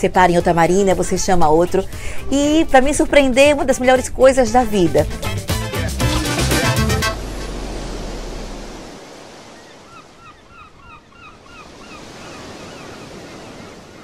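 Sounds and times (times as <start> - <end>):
surf washing onto beach: 6.1 - 10.2
low held note: 6.3 - 9.0.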